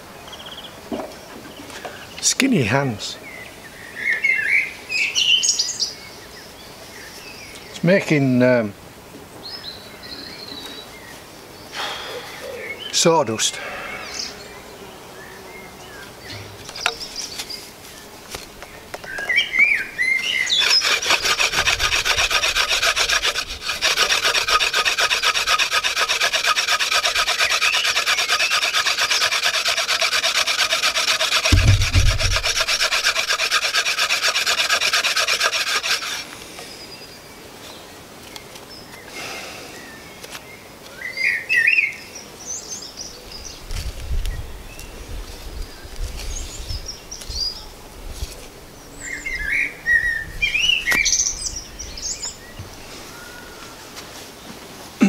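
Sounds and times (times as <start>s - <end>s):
wood-on-wood rasp and squeak: 20.4s - 36.3s
low thump: 31.5s - 32.8s.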